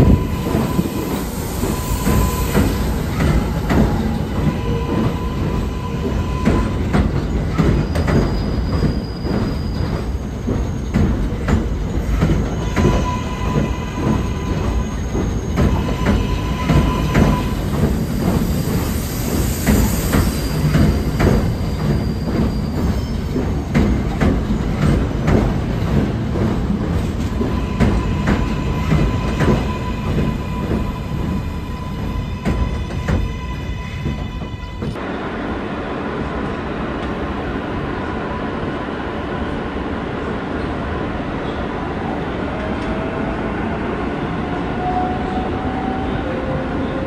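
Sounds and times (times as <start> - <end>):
high wheel squeal: 0.0 - 23.8
train rumbling and clicking: 0.0 - 47.0.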